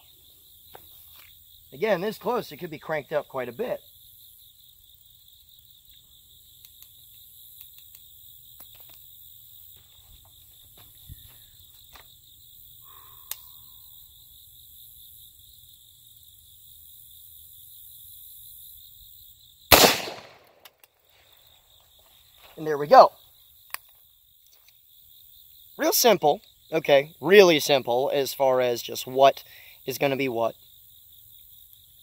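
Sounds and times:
high insect buzz: 0.0s - 1.9s, 3.8s - 20.5s, 21.1s - 28.0s
rifle shot: 19.7s - 20.7s
rifle handling clicks: 19.7s - 20.9s.

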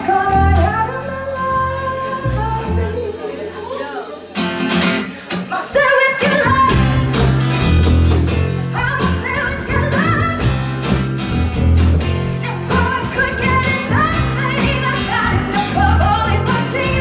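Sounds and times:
bass guitar: 0.0s - 5.3s, 6.2s - 17.0s.

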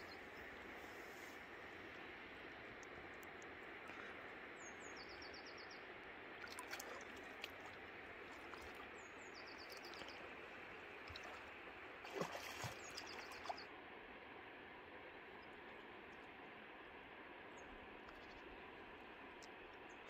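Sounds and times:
river flowing: 0.0s - 20.0s
small bird singing: 4.6s - 5.8s, 9.0s - 10.3s, 12.7s - 13.7s.

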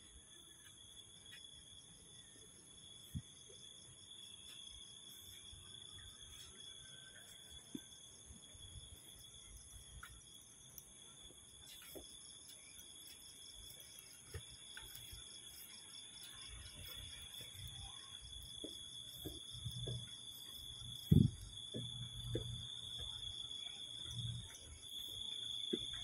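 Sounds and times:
crickets chirping: 0.0s - 26.0s
footsteps on concrete: 11.2s - 26.0s.

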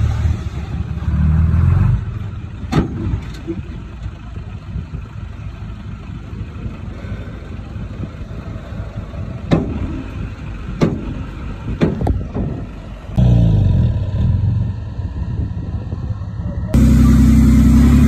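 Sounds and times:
heavy machine engine running: 16.7s - 18.0s.

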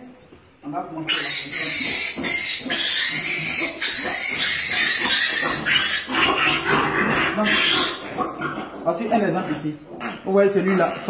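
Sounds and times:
piglet squealing: 1.0s - 11.0s.

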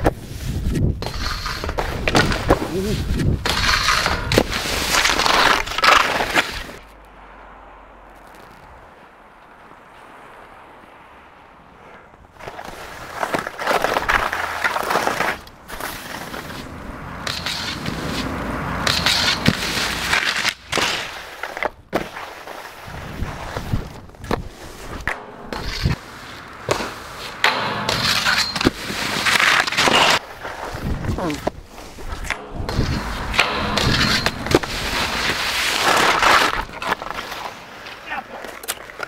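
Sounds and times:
skis scraping over packed snow: 0.0s - 39.0s
sharp knocks and clatters: 24.2s - 31.0s, 32.0s - 37.2s.

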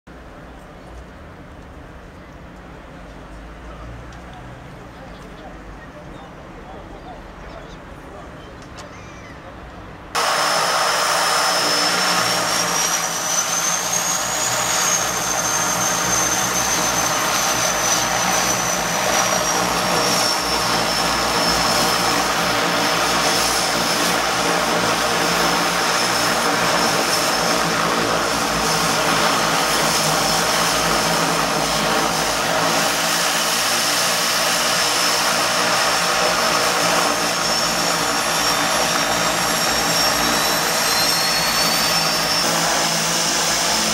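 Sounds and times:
propeller drone: 6.8s - 43.9s
high turbine whine: 10.0s - 43.9s.

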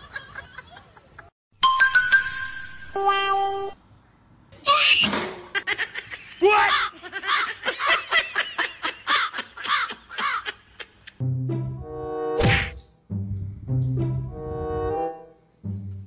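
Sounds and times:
person laughing: 5.6s - 11.2s.

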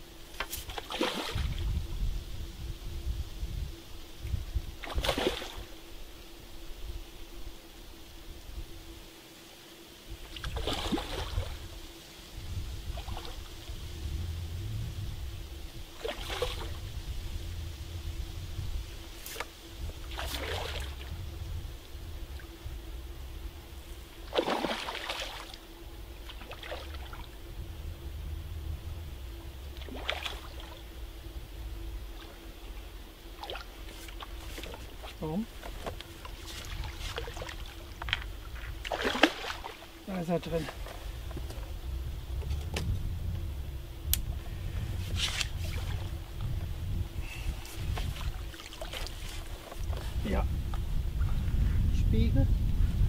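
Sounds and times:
wind rumble on microphone: 0.0s - 5.8s, 10.0s - 24.4s, 25.4s - 39.0s, 40.4s - 53.0s
fish splashing at water surface: 16.0s - 16.8s, 24.3s - 25.6s, 29.8s - 30.8s, 38.9s - 39.9s.

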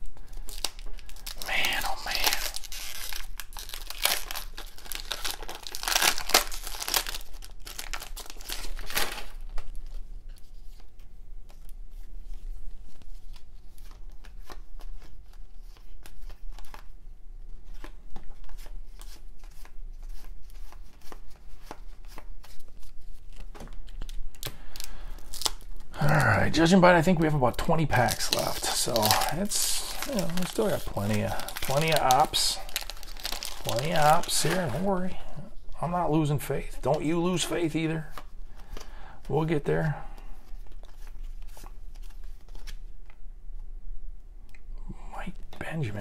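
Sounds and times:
wrapper tearing and crinkling: 0.2s - 10.0s, 20.4s - 26.7s, 27.6s - 35.1s.

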